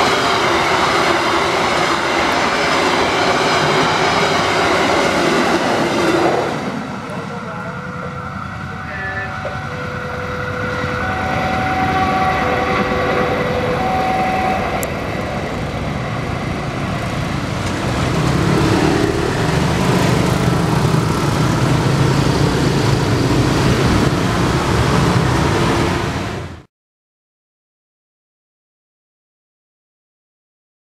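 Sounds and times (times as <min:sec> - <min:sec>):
passenger train running: 0:00.0 - 0:26.7.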